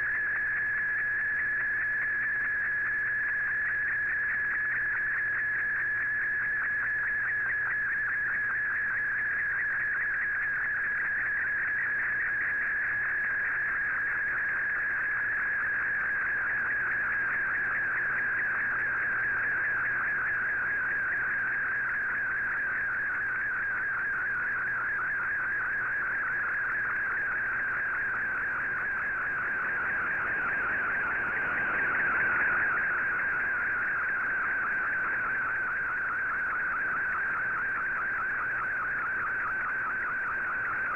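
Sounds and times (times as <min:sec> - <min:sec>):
warbling radio data tone: 0:26.3 - 0:40.9.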